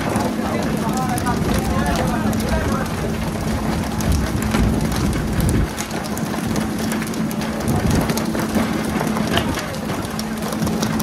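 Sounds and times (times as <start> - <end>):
boat engine humming: 0.0 - 11.0
splashing water: 0.0 - 11.0.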